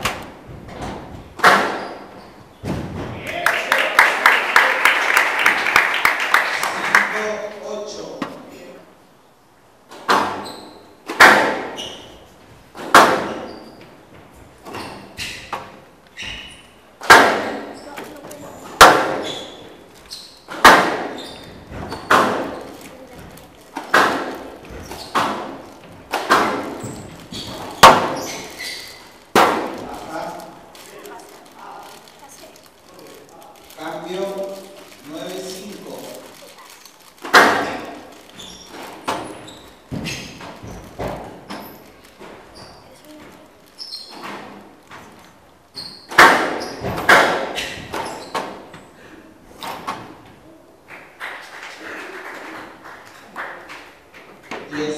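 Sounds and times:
squash ball hitting rackets and walls: 0.0 - 3.2, 9.9 - 30.1, 37.2 - 43.2, 43.8 - 48.8
shoes squeaking on court floor: 1.7 - 2.7, 10.3 - 11.0, 11.7 - 12.3, 13.3 - 16.8, 17.7 - 29.9, 30.7 - 48.9.

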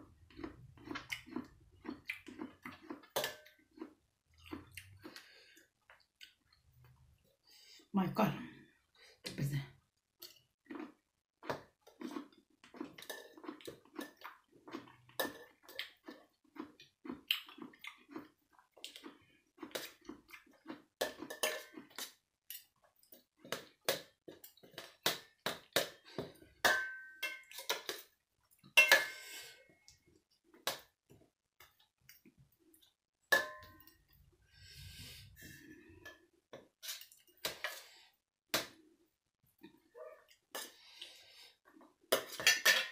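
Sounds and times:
cutlery clinking on metal tray: 21.0 - 21.8, 26.6 - 28.0, 28.8 - 29.2, 42.2 - 42.9.

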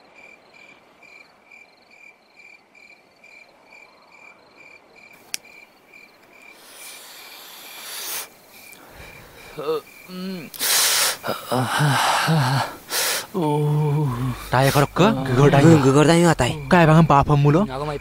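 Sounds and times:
crickets chirping: 0.0 - 18.0
hiss: 6.5 - 9.6, 10.5 - 13.4.

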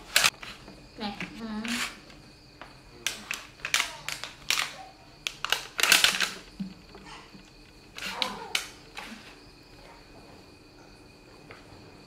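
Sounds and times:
plastic bag crinkling: 3.2 - 9.2.

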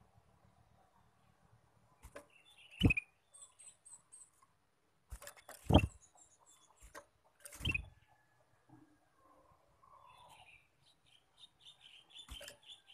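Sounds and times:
bird chirping: 0.7 - 4.5, 5.2 - 8.4, 9.2 - 12.9
bumps in wooden cage: 5.1 - 6.0.

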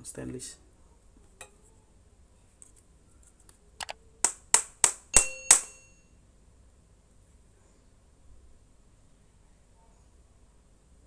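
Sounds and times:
sharp metallic taps: 4.2 - 6.0.

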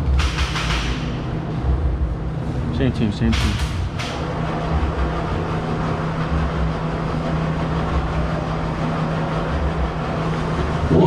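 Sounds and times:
mechanical drone: 1.1 - 11.0.

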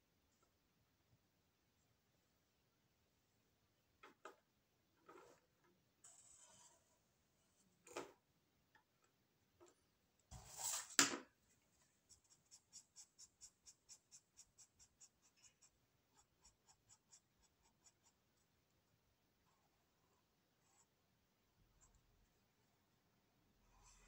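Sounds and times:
marker scratching on paper: 10.3 - 10.9, 12.1 - 18.2.

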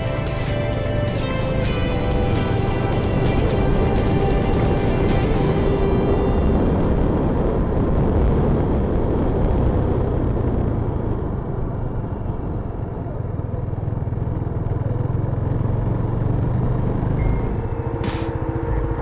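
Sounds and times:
wind noise: 0.0 - 13.2
motorcycle engine running: 0.0 - 19.0.

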